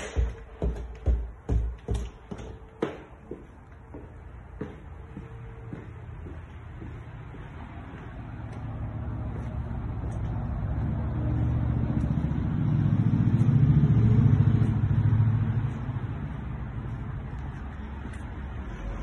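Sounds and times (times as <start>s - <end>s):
vehicle passing by: 4.2s - 19.0s.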